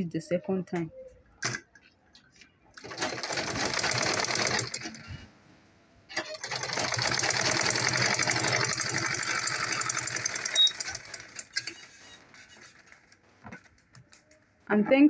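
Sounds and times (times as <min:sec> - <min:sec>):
sewing machine stitching: 0:02.8 - 0:05.2, 0:06.2 - 0:13.2
sewing machine clicks: 0:06.2 - 0:12.0.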